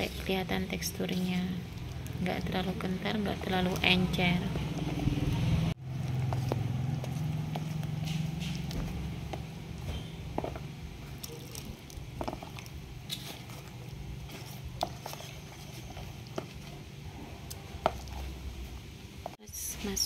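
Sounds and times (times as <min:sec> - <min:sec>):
spoon stirring thick batter: 0:00.0 - 0:19.4.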